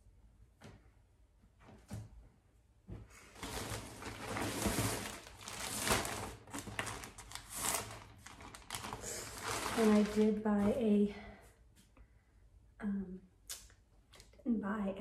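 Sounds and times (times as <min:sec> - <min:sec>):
packaging crinkling and rustling: 0:03.4 - 0:10.4.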